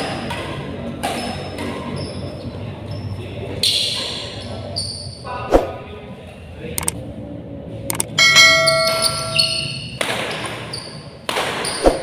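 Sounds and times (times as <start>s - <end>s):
racket hitting shuttlecock: 0.0s - 1.9s, 8.3s - 12.0s
bell-like ding: 8.2s - 9.8s.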